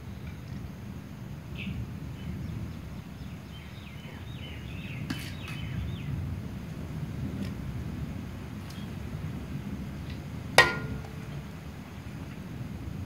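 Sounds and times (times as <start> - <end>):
spoon clinking against pot: 10.6 - 11.2.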